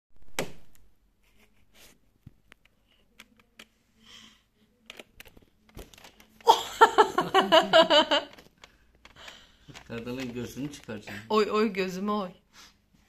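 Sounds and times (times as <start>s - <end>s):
soft breath: 3.8s - 4.8s, 8.6s - 9.8s
phone being handled: 8.1s - 11.0s.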